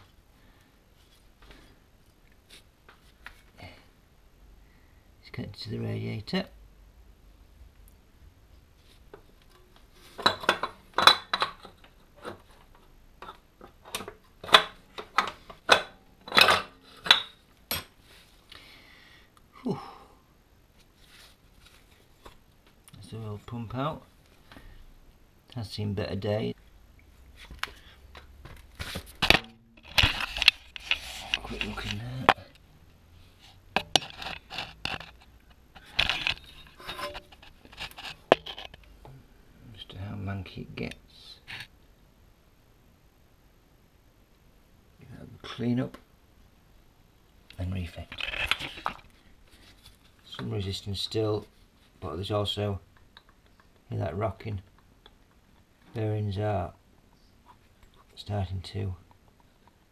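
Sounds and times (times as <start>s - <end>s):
scraping on engine housing: 33.8s - 38.8s.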